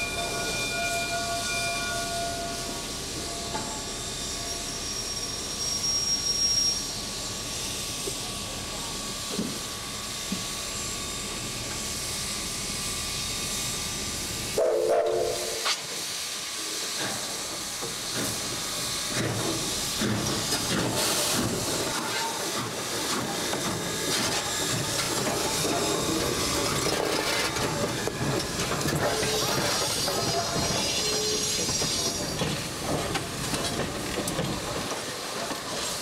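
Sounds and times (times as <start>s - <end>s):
steam locomotive hissing steam: 0.0s - 36.0s
whistle blast of steady tones: 0.2s - 7.0s, 14.6s - 15.7s.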